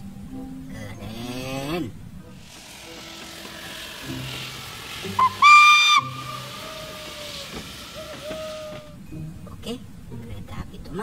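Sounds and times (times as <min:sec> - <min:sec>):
steam locomotive hissing: 0:02.3 - 0:09.1
short whistle pip: 0:05.0 - 0:09.0
loud whistle blast: 0:05.2 - 0:09.0.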